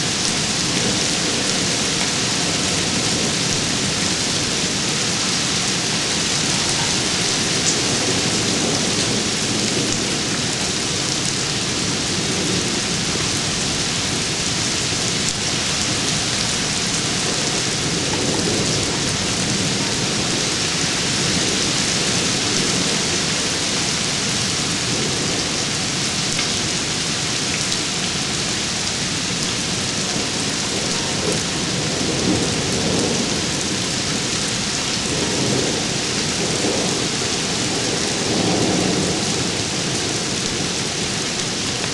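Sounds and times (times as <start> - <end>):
heavy rain falling: 0.0 - 41.9
thunder rumbling: 0.4 - 26.0, 29.2 - 41.9.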